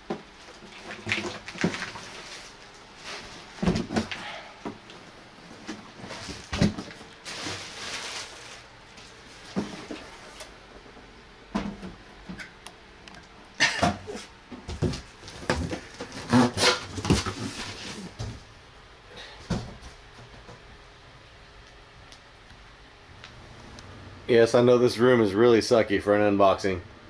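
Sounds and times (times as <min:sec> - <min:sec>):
cardboard rustling: 0:05.4 - 0:10.5, 0:14.7 - 0:18.4.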